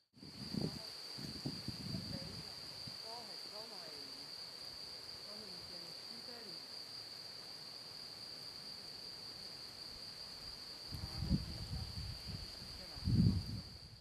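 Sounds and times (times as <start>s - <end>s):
low rumble on microphone: 0.2s - 3.0s, 10.9s - 14.0s
high-pitched insect trill: 0.2s - 14.0s.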